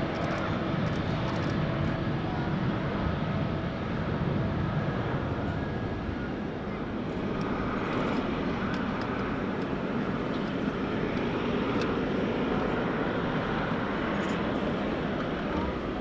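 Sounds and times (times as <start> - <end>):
jet engine rumble: 0.0 - 16.0.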